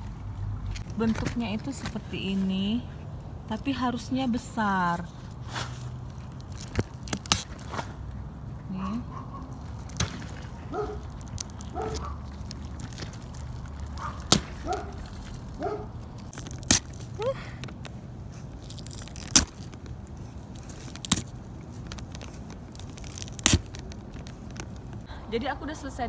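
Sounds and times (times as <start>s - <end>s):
sprouts snapping off stalk: 5.5s - 8.1s, 9.6s - 25.1s.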